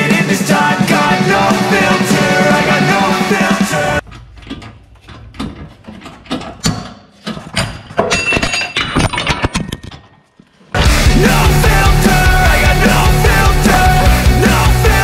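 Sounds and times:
heavy steel parts knocking: 4.0s - 10.1s.

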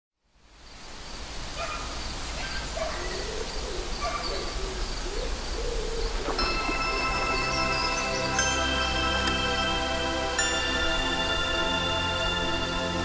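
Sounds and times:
birds chirping: 1.1s - 13.0s
low wavering hooting call: 3.0s - 13.0s
music: 6.3s - 13.0s.

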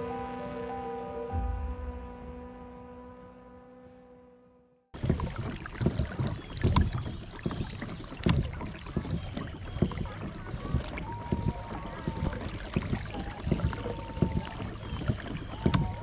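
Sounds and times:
knocks from pedal drive and hull: 5.0s - 16.0s
water sloshing: 5.0s - 16.0s
wind rumble on microphone: 5.0s - 16.0s.

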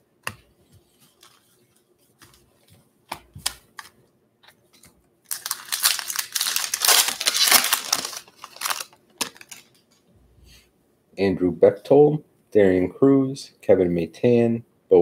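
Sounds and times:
card packs clicking: 4.8s - 9.8s
foil wrapper tearing and crinkling: 5.3s - 9.8s.

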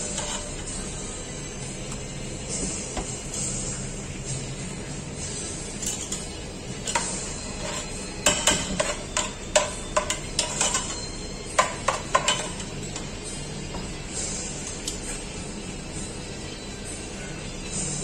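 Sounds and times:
metal spatula scraping a saucepan: 0.0s - 1.1s, 5.6s - 13.3s.

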